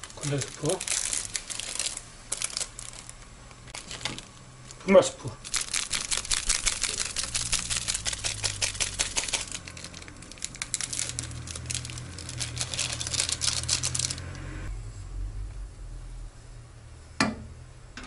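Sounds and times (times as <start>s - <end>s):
seasoning sachet shaken crinkling: 0.0s - 14.4s.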